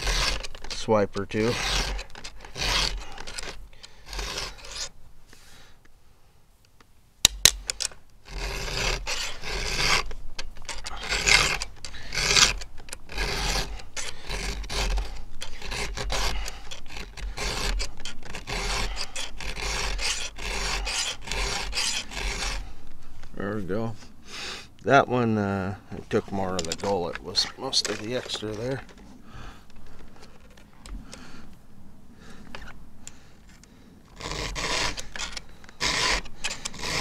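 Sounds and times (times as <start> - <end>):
file rasping on chainsaw chain: 0.0 - 4.9, 8.2 - 22.7, 34.1 - 37.0.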